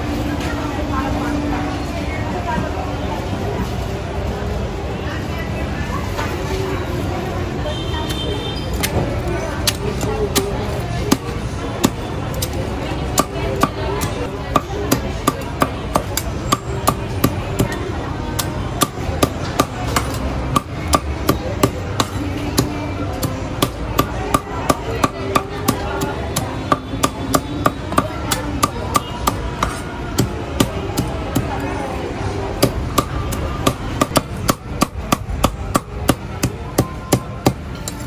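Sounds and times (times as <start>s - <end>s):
cleaver chopping on wooden block: 11.1s - 17.8s, 18.4s - 31.5s, 32.6s - 37.6s.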